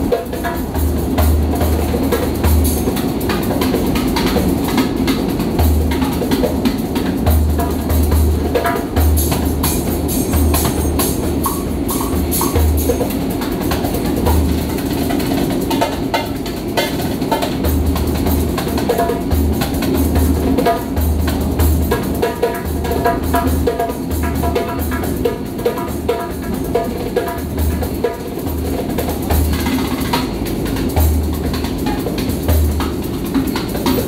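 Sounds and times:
hand drum playing: 0.0 - 34.0
metro carriage hum: 0.0 - 34.0.

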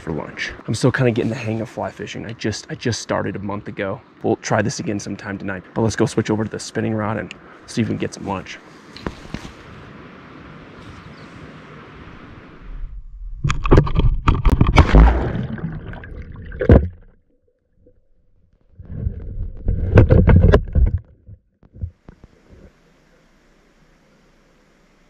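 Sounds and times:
steady hiss: 0.0 - 12.8, 21.9 - 25.0
muffled underwater sloshing: 13.5 - 22.8.

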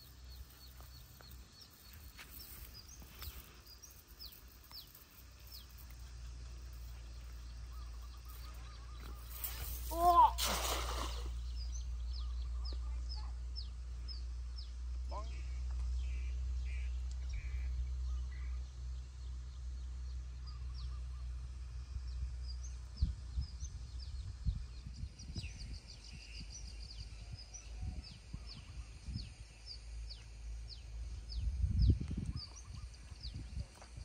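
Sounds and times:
birds chirping: 0.0 - 21.3
wind rumbling on microphone: 22.0 - 29.8, 30.7 - 34.0.

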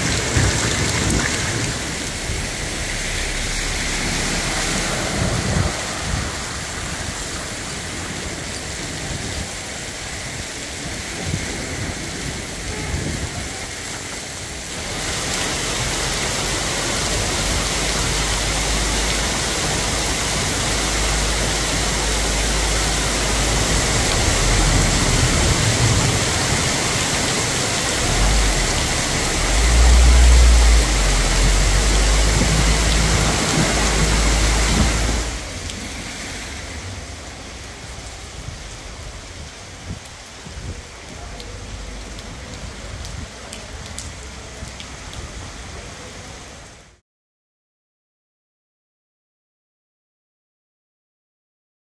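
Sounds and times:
deep low rumble: 0.0 - 7.5, 20.6 - 39.1
car splashing through water: 0.0 - 46.5
heavy rain pouring: 0.0 - 47.0.

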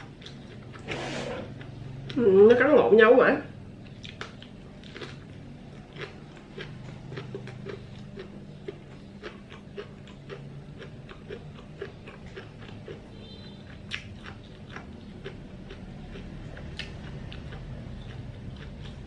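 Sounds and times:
faint low hum: 0.0 - 19.0
wet chewing mouth clicks: 3.9 - 19.0.

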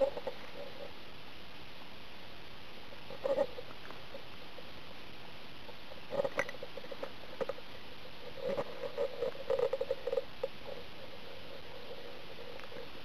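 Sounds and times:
crackling rustle: 0.0 - 13.0
steady background hiss: 0.0 - 13.0.

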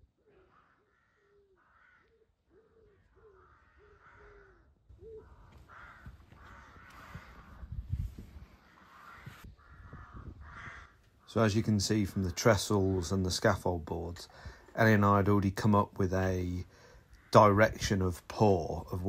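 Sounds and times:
crow cawing: 0.2 - 7.8, 8.4 - 13.1, 16.7 - 17.8.

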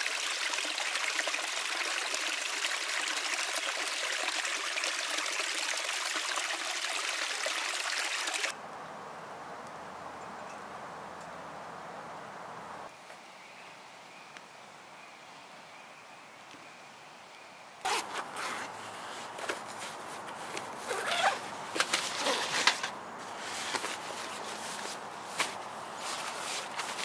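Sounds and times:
zipper pulled: 17.8 - 19.5, 20.8 - 24.4.

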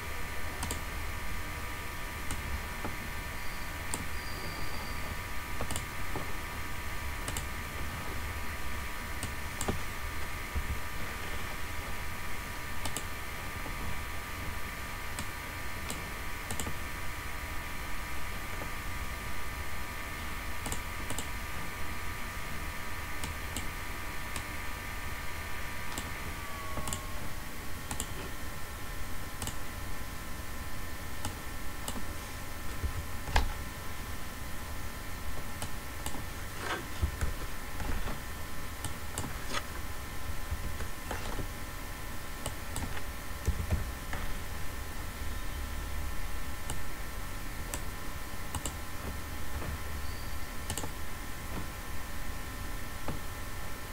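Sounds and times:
low hum: 0.0 - 53.9
mouse clicks: 5.6 - 5.9, 7.2 - 7.5, 12.8 - 13.1, 20.6 - 21.3, 27.9 - 28.2, 48.5 - 48.8, 50.7 - 51.0
keyboard typing: 7.2 - 7.5, 26.7 - 27.2, 27.9 - 28.2, 50.6 - 51.0.

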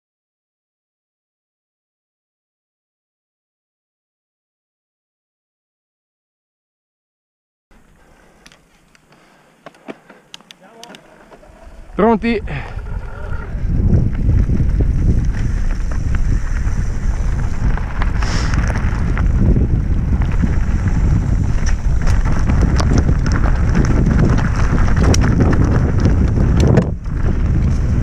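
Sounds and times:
bike rattling: 7.7 - 28.0
wind rumbling on microphone: 11.0 - 28.0
tyres rolling over dirt and stones: 13.6 - 28.0.

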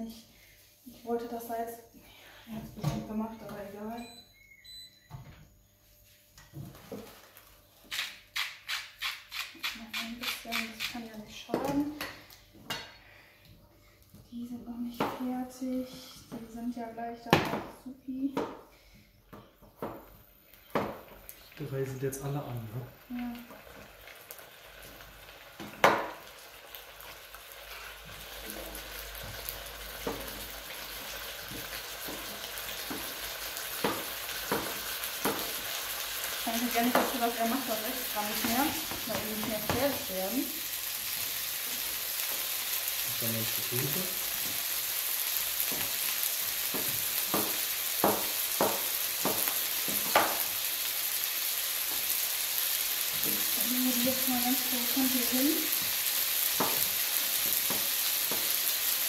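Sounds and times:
food sizzling in pans: 5.8 - 13.1, 20.5 - 59.0.

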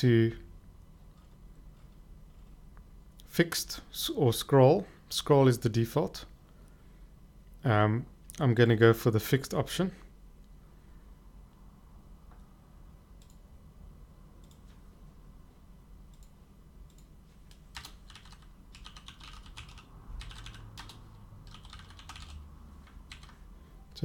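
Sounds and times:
low steady hum: 0.0 - 24.0
typing on computer keyboard: 16.9 - 23.4.

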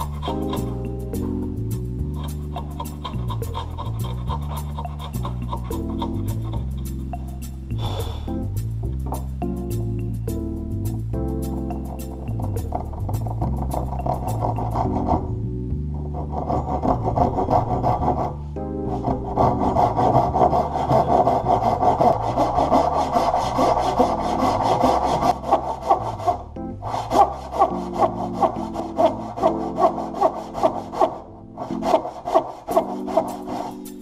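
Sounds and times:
handsaw ripping wood: 2.2 - 7.0, 16.1 - 34.0.

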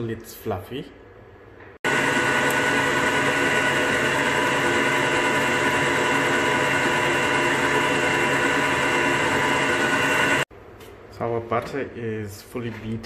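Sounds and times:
beater creaming butter in bowl: 1.9 - 10.5
stand mixer motor humming: 1.9 - 10.5.

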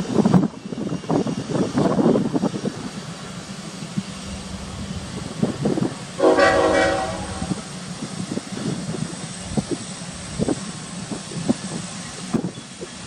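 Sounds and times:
locomotive air horn blast: 6.2 - 7.7.

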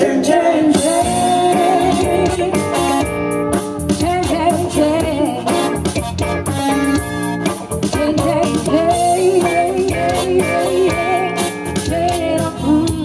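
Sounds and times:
person singing: 0.0 - 2.9, 7.9 - 13.0
electric guitar: 0.0 - 13.0.

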